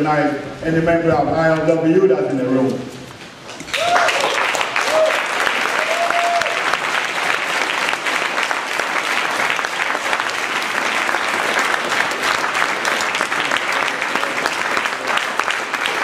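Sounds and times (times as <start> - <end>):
crowd applauding: 3.6 - 16.0.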